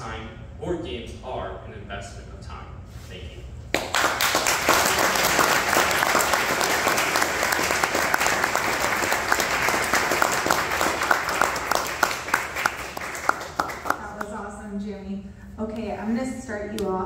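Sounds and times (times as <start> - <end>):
person clapping close by: 3.7 - 14.4
audience applauding: 3.8 - 14.4.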